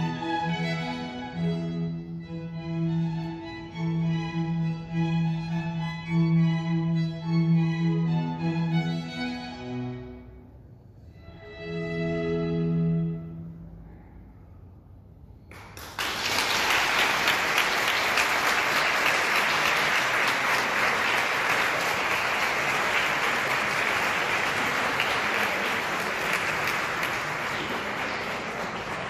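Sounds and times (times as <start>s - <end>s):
audience applause: 15.5s - 29.0s.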